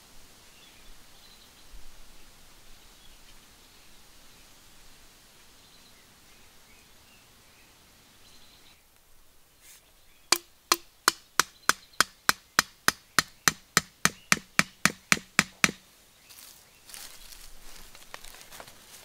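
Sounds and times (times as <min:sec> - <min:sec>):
bamboo stake knocks: 0:10.3 - 0:15.8.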